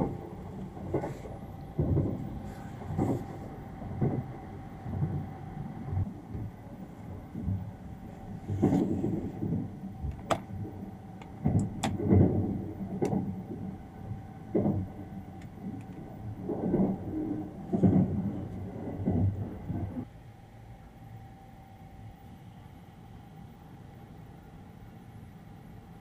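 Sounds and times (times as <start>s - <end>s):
train rumbling: 0.0s - 20.1s
faint steady hum: 0.0s - 26.0s
sharp clicks and creaks: 11.2s - 13.6s, 14.5s - 20.0s.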